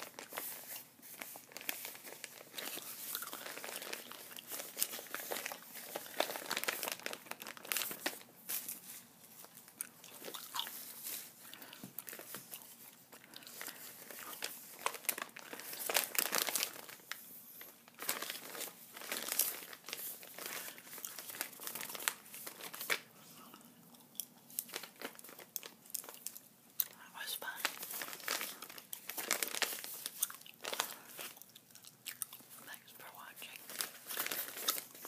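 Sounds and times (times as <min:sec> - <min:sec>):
paper envelope crinkling: 0:00.0 - 0:23.1, 0:24.5 - 0:26.4, 0:27.2 - 0:31.4, 0:33.3 - 0:35.0
gum chewing: 0:31.3 - 0:32.6.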